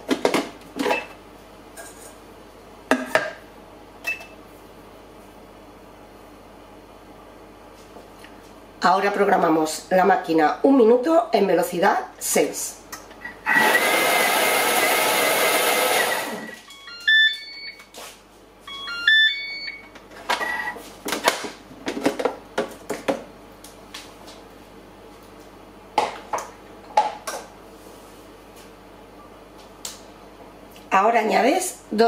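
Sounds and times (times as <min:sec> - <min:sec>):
blender motor running: 0:13.4 - 0:16.6
beeping tune: 0:16.4 - 0:17.8, 0:18.7 - 0:19.8.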